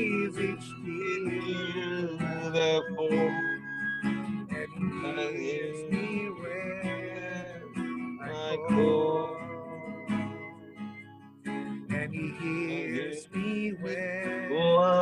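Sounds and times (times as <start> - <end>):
person singing: 0.0 - 3.6, 4.5 - 10.8, 11.9 - 15.0
acoustic guitar strumming: 0.0 - 15.0.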